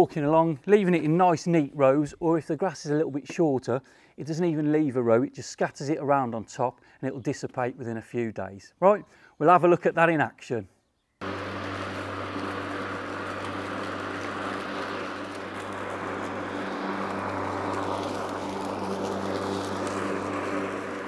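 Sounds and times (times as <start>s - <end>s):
electric lawnmower humming: 11.2s - 21.0s
rush of cut grass: 11.2s - 21.0s.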